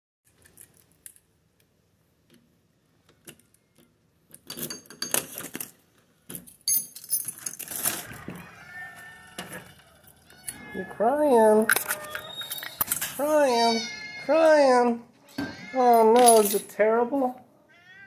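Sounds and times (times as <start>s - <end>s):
keys jangling: 11.7s - 13.2s, 15.9s - 16.7s
wavering squeak: 11.7s - 13.2s.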